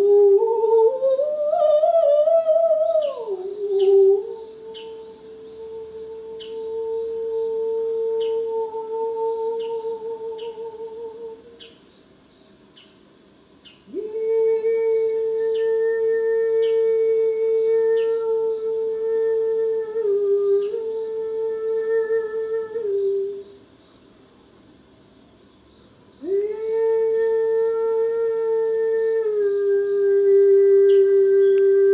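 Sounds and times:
long held pitched tone: 0.0 - 11.6, 26.2 - 31.9
faint ticks: 31.5 - 31.8.

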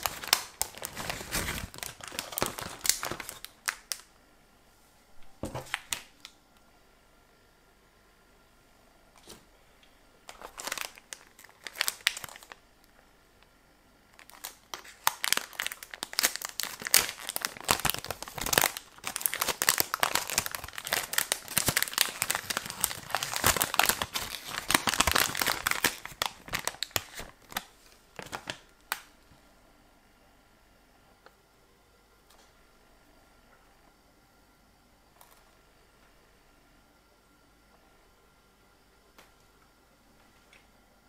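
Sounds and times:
foil wrapper crinkling: 0.0 - 4.1, 10.3 - 12.6, 14.1 - 29.1
wrapper tearing: 0.0 - 4.1, 10.3 - 12.6, 14.2 - 29.1.

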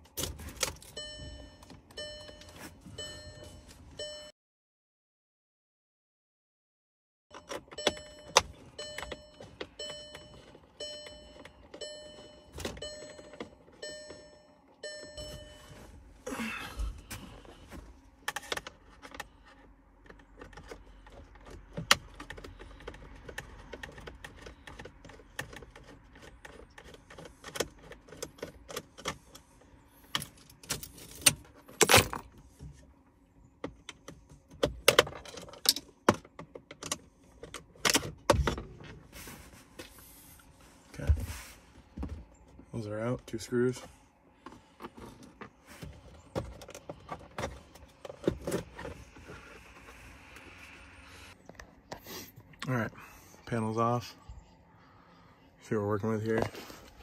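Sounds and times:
car warning chime: 0.8 - 4.4, 7.3 - 16.6.

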